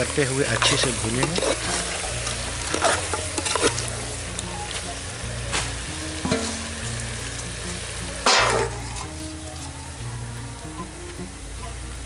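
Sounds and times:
utensil scraping a pot: 0.0s - 4.8s
food sizzling in a pot: 0.0s - 12.0s.

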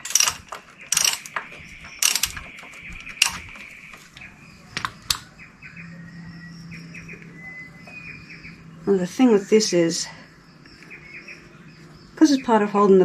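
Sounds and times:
socket ratchet clicking: 0.0s - 1.4s, 2.0s - 2.6s
birds chirping: 0.0s - 13.0s.

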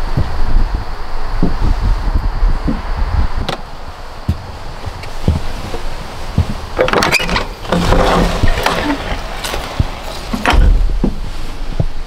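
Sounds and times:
door bumping: 5.1s - 12.0s
door creaking: 6.4s - 11.3s.

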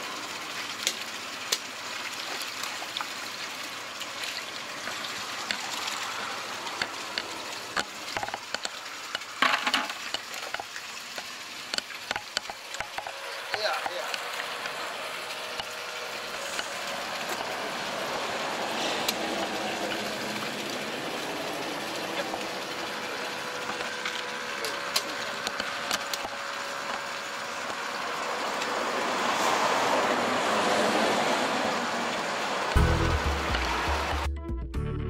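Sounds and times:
running water: 0.0s - 34.3s.

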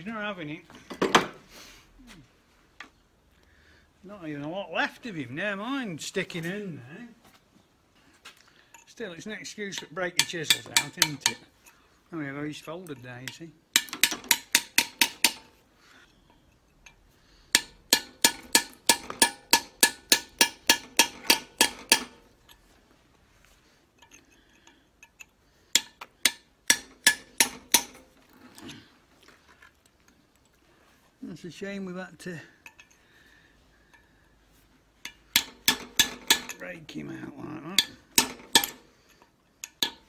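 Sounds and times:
hammer striking chisel on metal: 9.8s - 11.5s, 13.3s - 15.6s, 17.5s - 22.2s, 25.0s - 28.1s, 35.0s - 36.6s, 37.8s - 38.8s, 39.6s - 40.0s.

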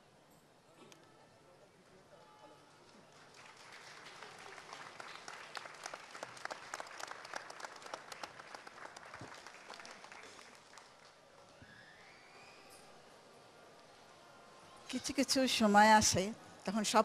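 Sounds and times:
crowd applauding: 2.7s - 12.3s.

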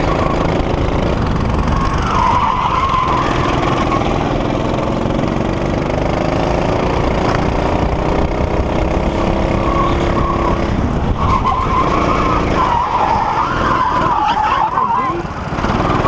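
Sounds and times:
tyre squeal: 0.0s - 0.7s, 1.7s - 4.5s, 9.2s - 15.2s
wind buffeting camera: 0.0s - 4.0s, 6.5s - 12.6s
go-kart engine running: 0.0s - 16.0s.

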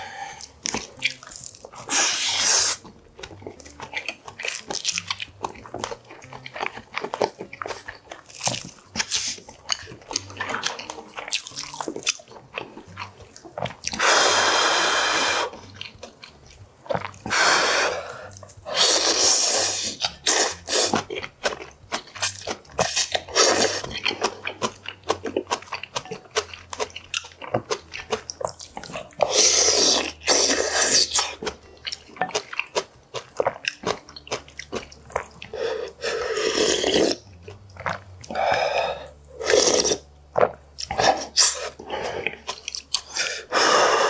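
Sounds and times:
person chewing: 0.0s - 44.0s
slurping noodles and broth: 1.7s - 3.0s, 13.9s - 15.7s, 17.0s - 21.1s, 22.0s - 24.7s, 28.8s - 31.6s, 35.4s - 44.0s.

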